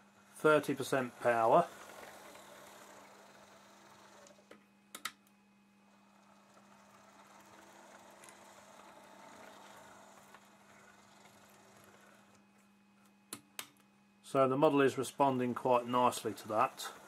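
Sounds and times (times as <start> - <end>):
low steady hum: 0.0 - 17.0
model locomotive gear whir: 0.1 - 4.6, 5.9 - 12.4, 14.9 - 17.0
sharp clicks: 4.9 - 5.3.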